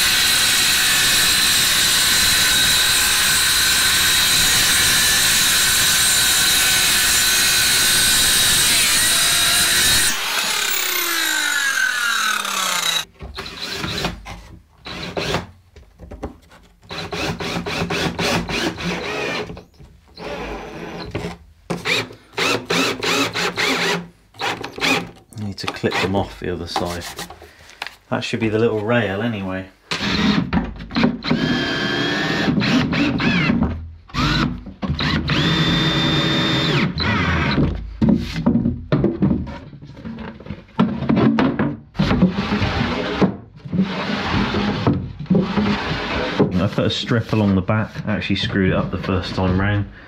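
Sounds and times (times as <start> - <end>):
power tool winding down: 0.0 - 13.0
power tool running: 0.0 - 13.8, 35.0 - 37.3.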